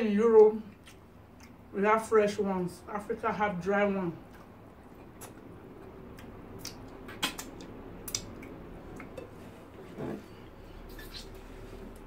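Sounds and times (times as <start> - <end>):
chewing and lip smacks: 0.7 - 1.6, 4.2 - 9.2.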